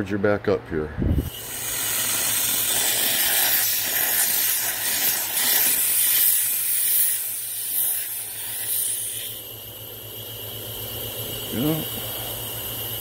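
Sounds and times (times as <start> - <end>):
compressed air hissing: 1.1 - 13.0.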